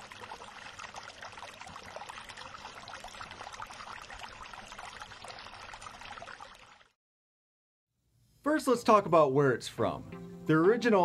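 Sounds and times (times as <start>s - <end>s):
water trickling and splashing: 0.0s - 7.0s.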